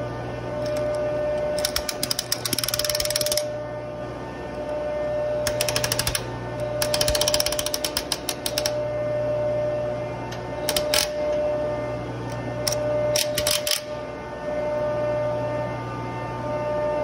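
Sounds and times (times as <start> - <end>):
impact wrench hammering: 0.6 - 3.5, 5.5 - 8.8, 10.6 - 11.2.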